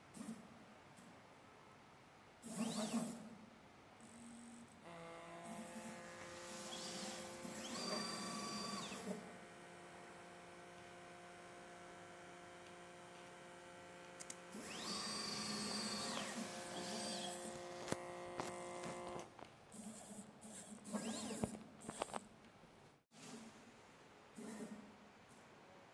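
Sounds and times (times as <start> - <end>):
stepper motors whining: 5.4 - 9.2, 14.0 - 19.2.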